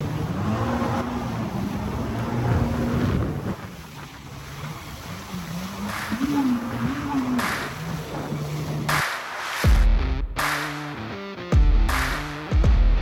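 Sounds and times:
wind buffeting microphone: 0.0s - 9.0s
jet ski engine running: 0.0s - 9.9s
water spray: 4.8s - 9.8s.

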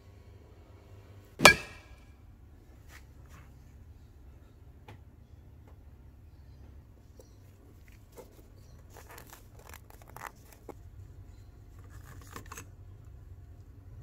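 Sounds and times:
glass lens dome clicking and scraping: 7.2s - 12.7s
glove rustle: 7.7s - 10.9s.

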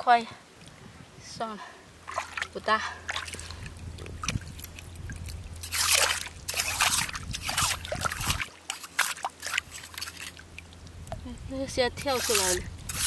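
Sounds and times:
hands splashing in water: 3.1s - 10.6s.

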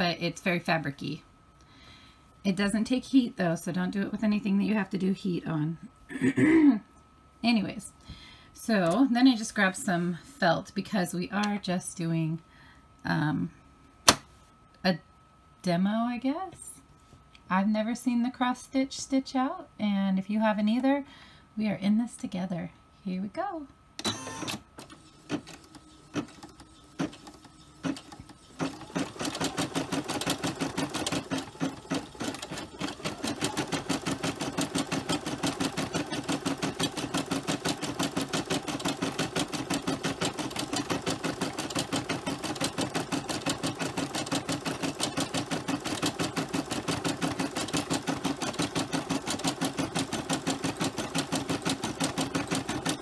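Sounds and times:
embroidery machine stitching: 24.0s - 53.0s.

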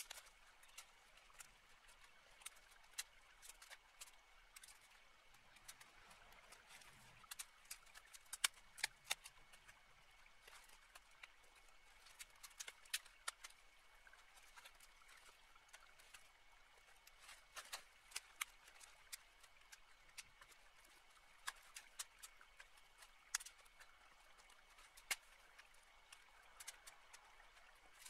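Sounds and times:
branches and twigs snapping: 6.7s - 9.3s.

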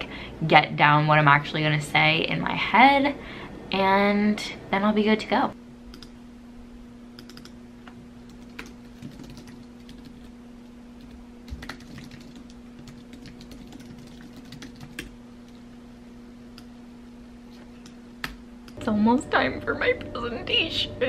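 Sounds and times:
low hum: 5.5s - 21.0s
keyboard typing: 7.2s - 7.6s, 8.2s - 10.3s, 11.0s - 15.6s.

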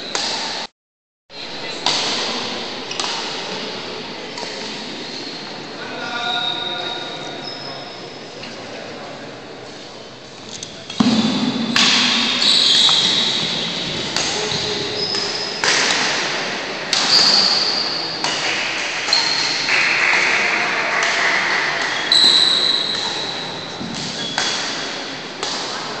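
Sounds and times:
racket hitting shuttlecock: 0.1s - 0.6s, 1.8s - 3.7s, 10.9s - 22.1s, 22.7s - 26.0s
shoes squeaking on court: 12.4s - 15.6s, 22.0s - 24.5s.

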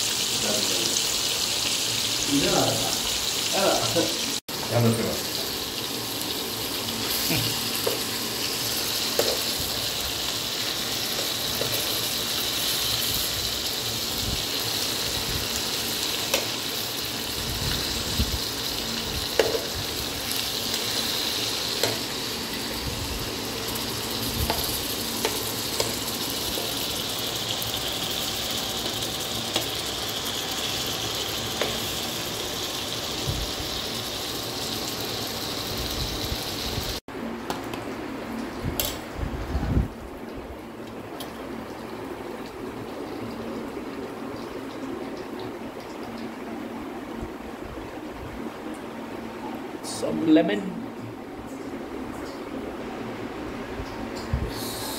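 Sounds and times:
fish sizzling in oil: 0.0s - 37.0s, 54.5s - 54.9s.

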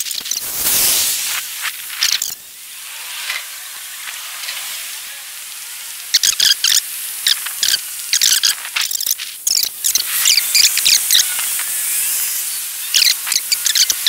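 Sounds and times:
high-pitched chirps and chittering: 0.0s - 4.8s, 6.0s - 14.0s
sped-up street noise hiss: 0.0s - 14.0s.

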